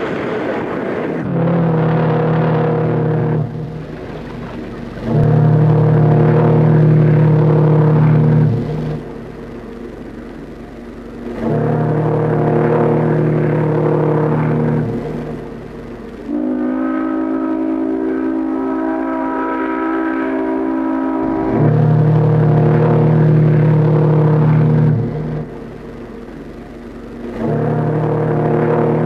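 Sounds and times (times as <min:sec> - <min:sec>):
steam whistle blasts: 0:00.0 - 0:09.7, 0:11.1 - 0:26.0, 0:27.2 - 0:29.0.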